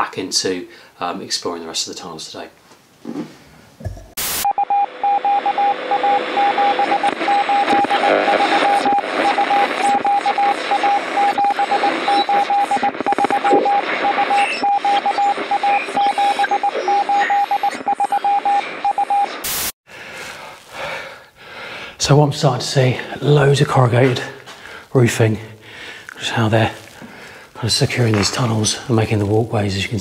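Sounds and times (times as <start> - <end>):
radio static: 4.2 - 19.8, 26.1 - 30.0
morse code beeps: 4.4 - 19.4.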